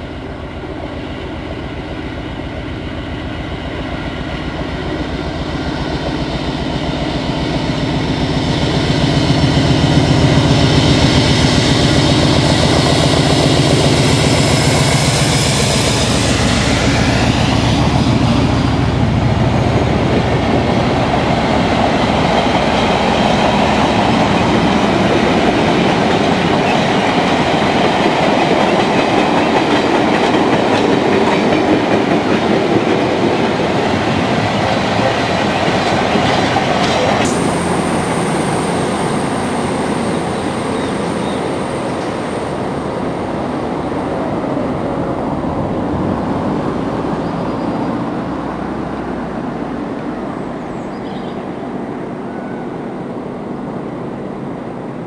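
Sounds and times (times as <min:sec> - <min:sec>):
diesel train with high whine: 0:00.0 - 0:55.0
freight train wheels clattering: 0:08.6 - 0:43.1.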